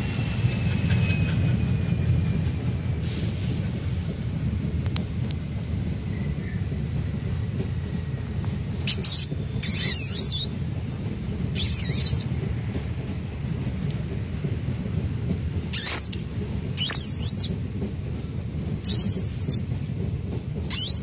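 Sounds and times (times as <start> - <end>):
puppies squealing: 8.9 - 10.6, 11.6 - 12.3, 15.7 - 17.6, 18.8 - 19.6, 20.7 - 21.0.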